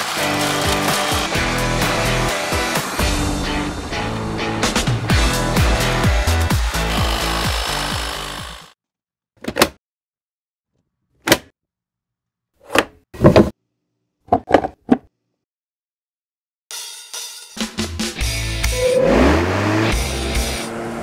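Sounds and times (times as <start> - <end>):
background music: 0.0 - 8.3.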